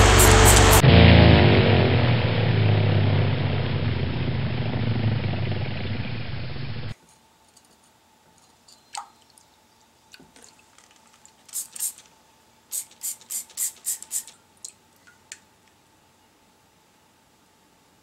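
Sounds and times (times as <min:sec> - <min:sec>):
water dripping and splashing: 0:08.9 - 0:09.4, 0:14.0 - 0:15.4.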